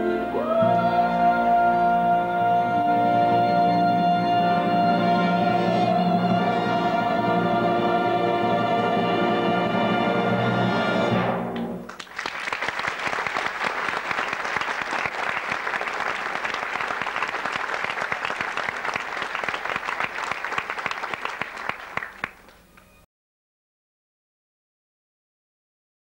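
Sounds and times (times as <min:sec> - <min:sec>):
audience applauding: 0:11.8 - 0:22.8.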